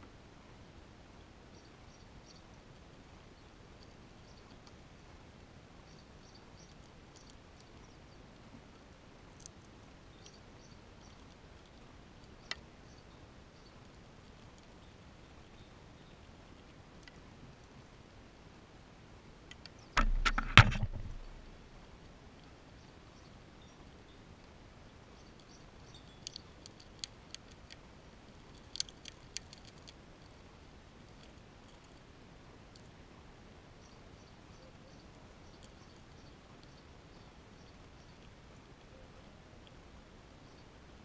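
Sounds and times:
steady low hiss: 0.0s - 41.0s
squirrel nibbling clicks: 25.4s - 27.8s, 28.4s - 30.4s.

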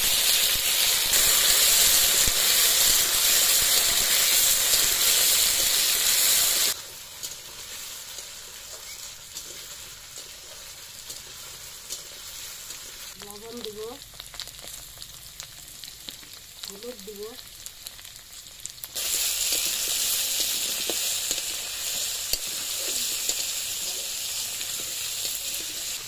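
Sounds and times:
food sizzling in hot oil: 0.0s - 26.0s
small crackles of frying: 0.0s - 26.0s.

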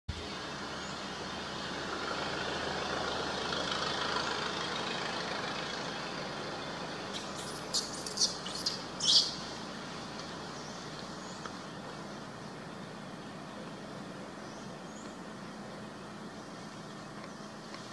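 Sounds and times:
forest ambience hiss: 0.1s - 17.9s.

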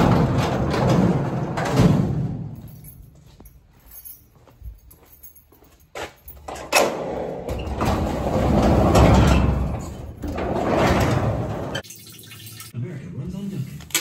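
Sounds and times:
garage door rolling up: 0.0s - 2.7s, 6.4s - 11.8s.

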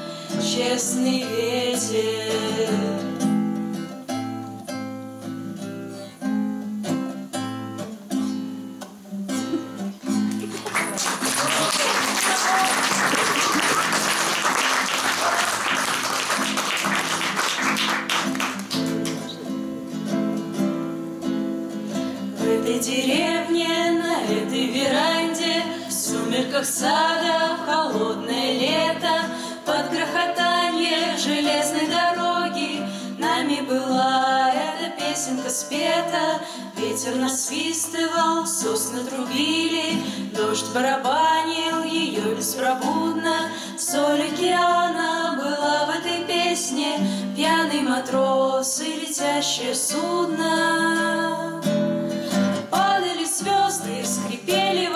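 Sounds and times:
women singing together: 0.0s - 3.3s, 22.4s - 51.8s, 52.6s - 54.9s
acoustic guitar: 0.0s - 54.9s.

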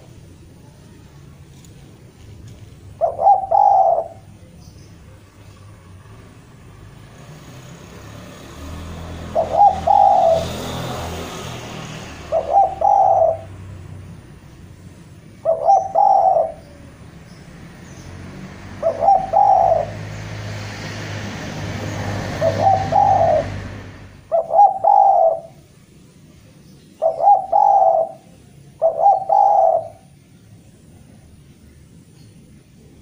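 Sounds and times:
dove cooing: 2.8s - 4.5s, 9.2s - 10.7s, 12.0s - 13.7s, 15.2s - 17.1s, 18.7s - 20.2s, 22.2s - 25.7s, 27.0s - 30.2s.

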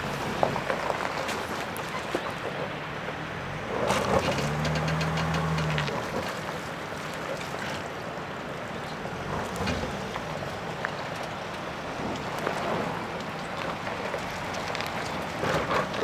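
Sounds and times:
gravel crackling under tyres: 0.0s - 16.0s.

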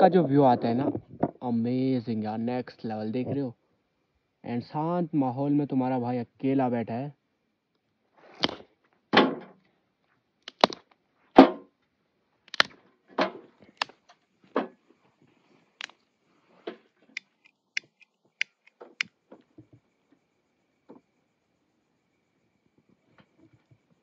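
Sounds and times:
sticks snapping: 8.4s - 8.6s, 10.4s - 11.0s, 12.5s - 12.8s, 13.7s - 14.0s, 17.1s - 19.1s.

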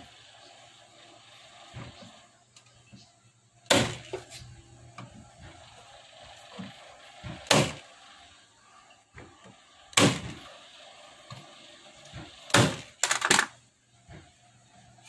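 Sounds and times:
nail gun firing: 3.7s - 4.2s, 7.5s - 7.8s, 10.0s - 10.4s, 12.5s - 13.5s.

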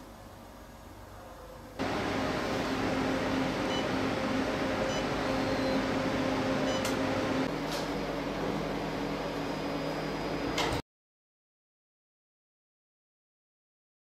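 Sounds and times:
machine fan hum: 0.0s - 10.8s.

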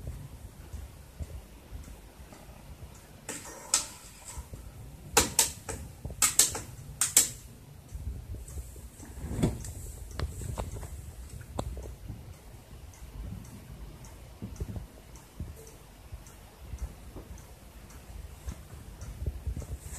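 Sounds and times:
washing machine relays clicking: 2.9s - 7.5s.

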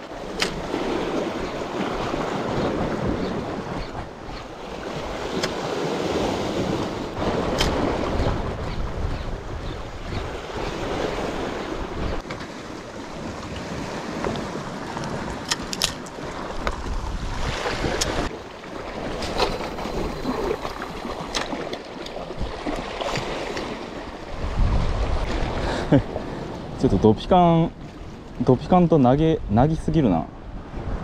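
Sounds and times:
waves on rocky shore: 0.0s - 28.4s
wind on microphone: 0.2s - 12.2s, 12.8s - 21.6s, 22.2s - 27.2s, 29.0s - 31.0s.

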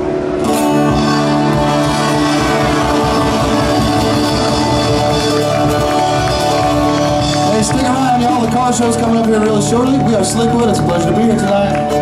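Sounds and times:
amplified electric guitars: 0.0s - 12.0s
drum beat: 1.0s - 9.8s.

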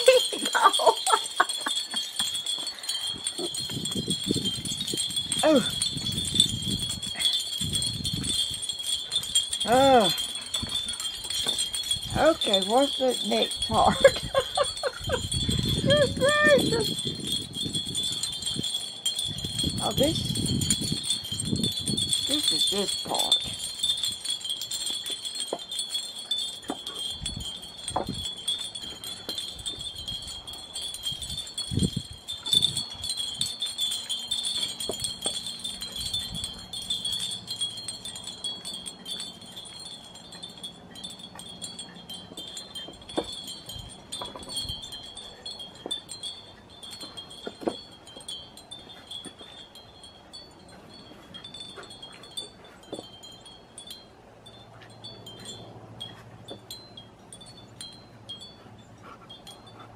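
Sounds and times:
wind chimes tinkling: 0.0s - 59.9s.

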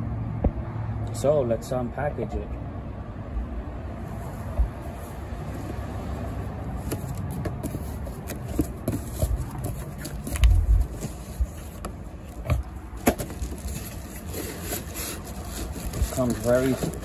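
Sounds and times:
steady low rumble: 3.1s - 6.8s, 10.3s - 14.0s
cardboard box being opened: 5.5s - 17.0s.

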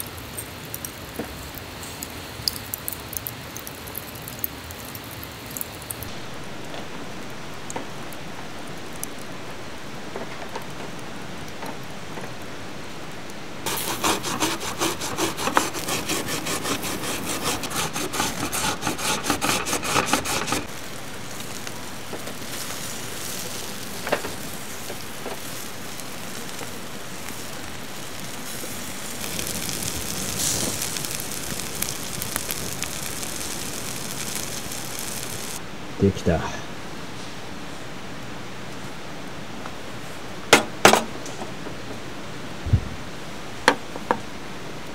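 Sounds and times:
charcoal crackling: 0.0s - 35.6s
fish sizzling on a grill: 0.0s - 35.6s
radish rasping on a metal grater: 13.7s - 20.7s.

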